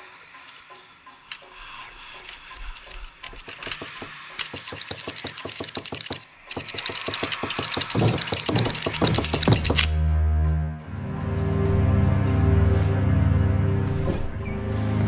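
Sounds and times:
rapid mechanical clicking: 1.2 - 9.9.

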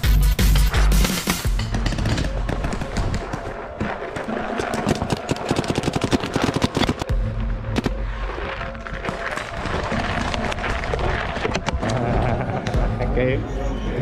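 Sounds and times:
background music: 0.0 - 14.0
rapid toy gun shots: 1.0 - 7.1.

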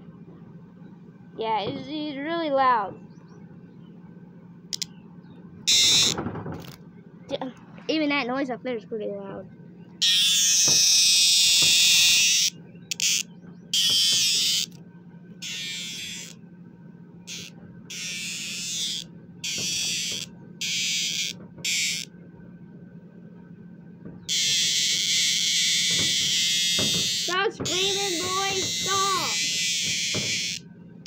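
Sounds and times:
cicada buzzing loudly: 5.7 - 6.2, 10.0 - 14.8, 15.4 - 16.4, 17.2 - 22.1, 24.3 - 30.7.

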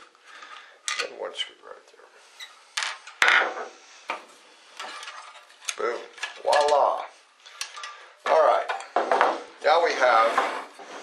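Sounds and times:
scraping on wooden table: 9.0 - 11.0.

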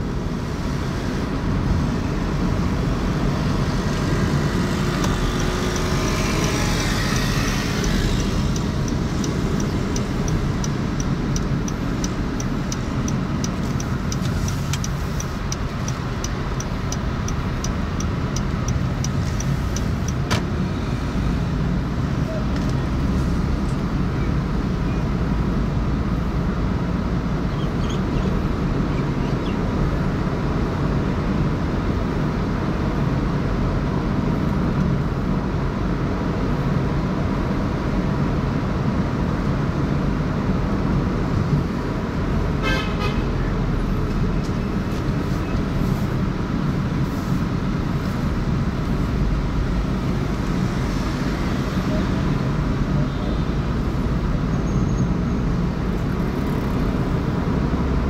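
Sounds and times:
car road noise: 0.0 - 58.0
vehicle horn: 42.6 - 43.4.

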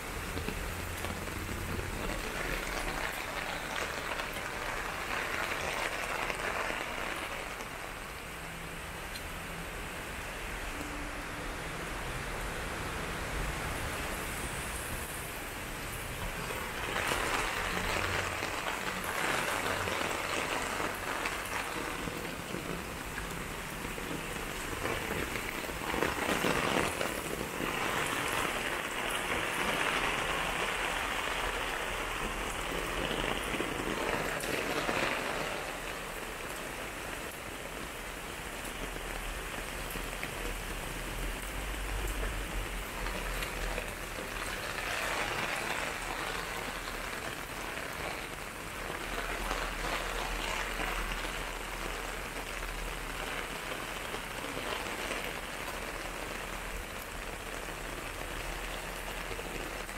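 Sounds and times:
rain splashing on hard surfaces: 0.0 - 59.9.

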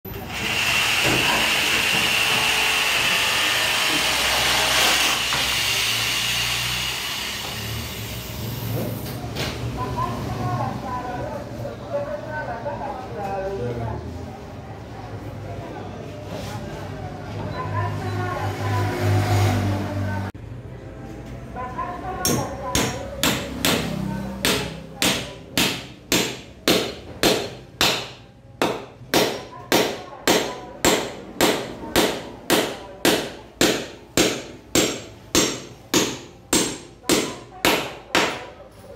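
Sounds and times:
power tool whining: 0.1 - 8.3
hammer striking nail: 22.2 - 38.4.

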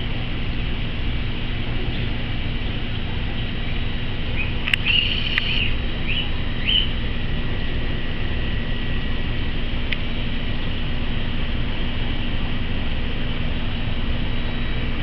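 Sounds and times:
aquarium pumps humming: 0.0 - 15.0
sharp clicks: 4.6 - 5.6.

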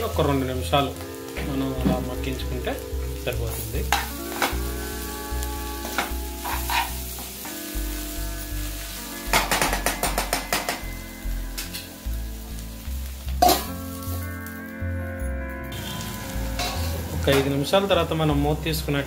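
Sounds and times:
background music with bass line: 0.0 - 19.0
food frying in a pan: 0.0 - 19.0
spatula scraping a pan: 5.9 - 7.4.

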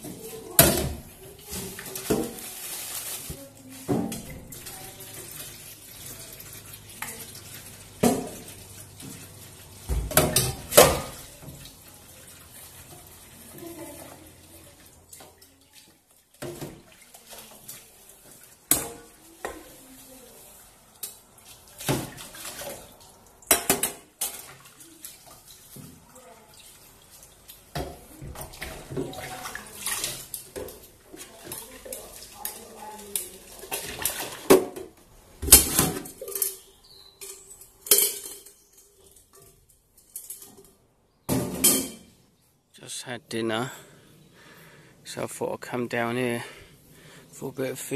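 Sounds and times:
tap water splashing: 0.0 - 19.9, 21.0 - 36.6
pot scrubbing: 0.0 - 34.8
metal pot clanking on sink: 23.5 - 24.5, 41.3 - 42.1.

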